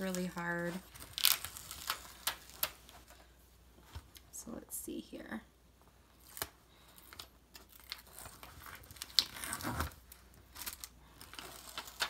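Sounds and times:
plastic film crackling: 0:00.0 - 0:03.2, 0:06.1 - 0:12.0.

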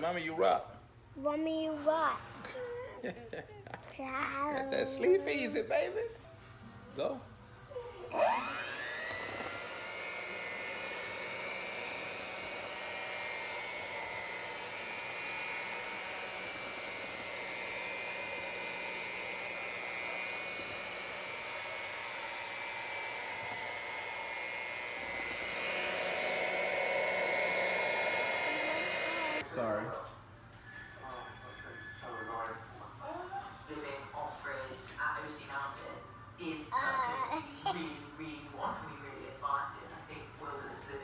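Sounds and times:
electric hand mixer whirring: 0:04.7 - 0:06.1, 0:08.1 - 0:29.4.

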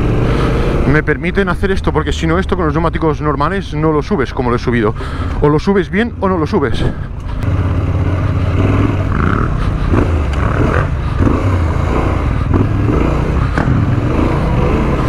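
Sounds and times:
motorcycle engine running: 0:00.0 - 0:01.0, 0:07.4 - 0:15.0
motorcycle knocks and rattles: 0:13.5 - 0:13.9.

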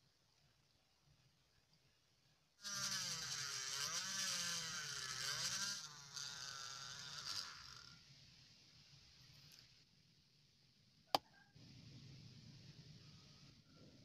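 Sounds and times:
electric mini drill boring plastic: 0:02.6 - 0:08.0.

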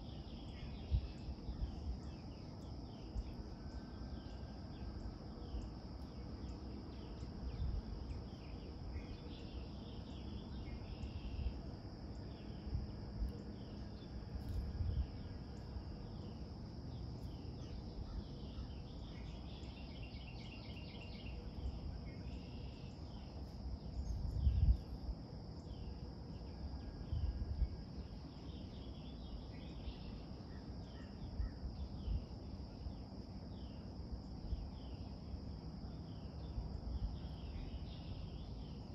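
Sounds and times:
high insect drone: 0:00.0 - 0:38.9
low rumbles on microphone: 0:24.0 - 0:25.0.

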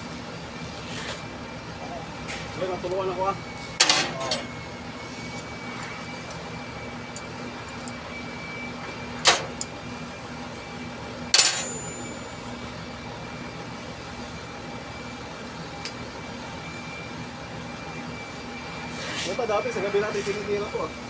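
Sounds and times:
low mechanical hum: 0:00.0 - 0:21.0
metal clanks: 0:11.3 - 0:12.1.

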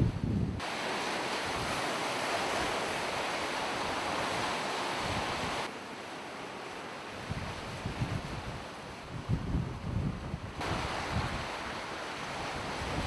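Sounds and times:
gusty wind rumble on microphone: 0:00.0 - 0:00.6, 0:07.3 - 0:11.5, 0:12.3 - 0:13.0
rushing wind and sea: 0:00.0 - 0:13.0.

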